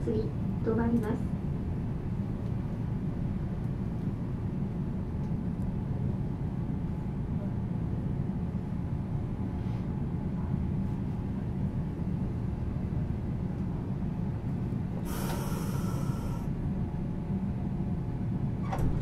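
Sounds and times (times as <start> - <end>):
tram interior rumble: 0.0 - 19.0
air hissing: 15.1 - 16.5.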